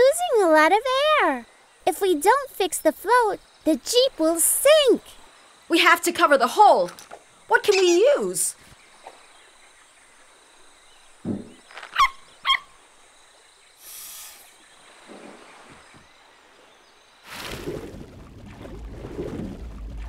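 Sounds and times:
high wavering animal calls: 7.5s - 8.5s, 11.9s - 12.8s
soft low thud: 11.2s - 11.7s
short hiss: 13.8s - 14.6s.

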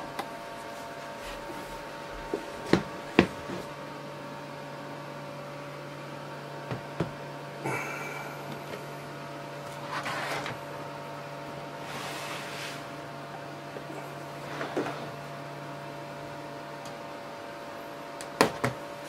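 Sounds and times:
electrical hum: 0.0s - 19.0s
brief scrape: 11.8s - 12.9s.

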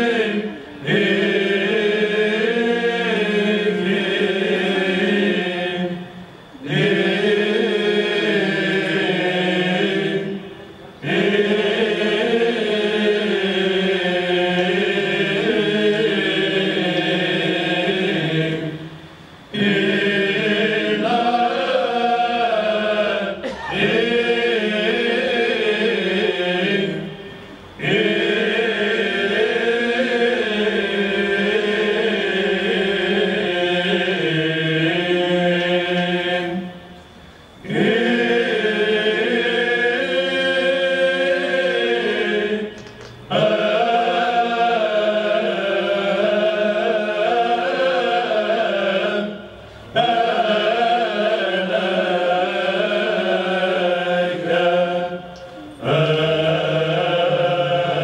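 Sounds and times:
male choir chanting: 0.0s - 58.0s.

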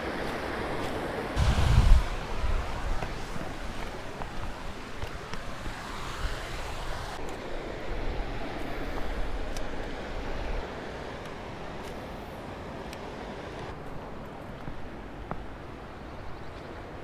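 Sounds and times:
wind buffeting microphone: 0.1s - 10.9s.

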